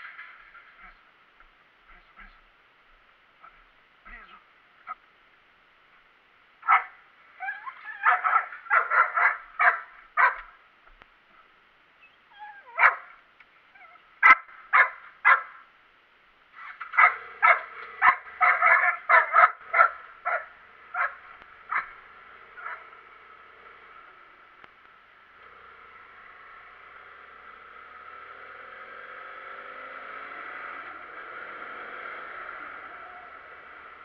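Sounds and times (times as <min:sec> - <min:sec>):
dog yipping and barking: 0:06.6 - 0:10.6, 0:12.0 - 0:15.6, 0:16.6 - 0:23.0.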